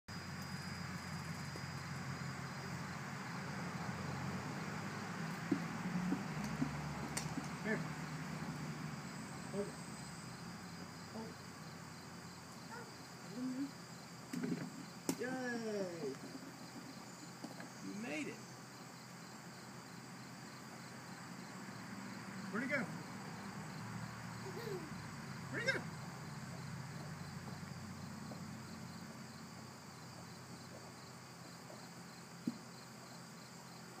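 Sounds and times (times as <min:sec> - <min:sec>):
drone of insects: 0:00.1 - 0:34.0
toddler vocal sounds: 0:12.7 - 0:13.8, 0:24.4 - 0:25.0.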